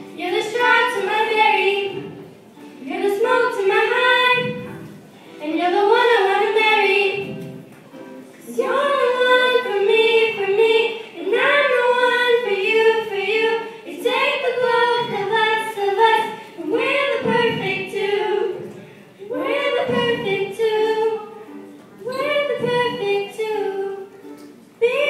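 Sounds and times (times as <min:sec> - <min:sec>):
girls singing together: 0:00.0 - 0:25.0.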